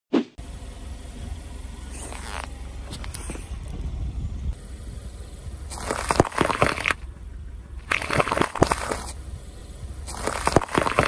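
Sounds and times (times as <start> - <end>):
steady low rumble: 0.4 - 11.0
tyre crushing peppers: 10.1 - 11.0.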